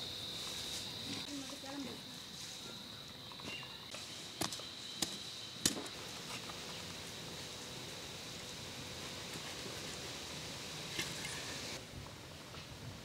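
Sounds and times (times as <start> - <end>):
high-pitched insect drone: 0.0 - 9.3.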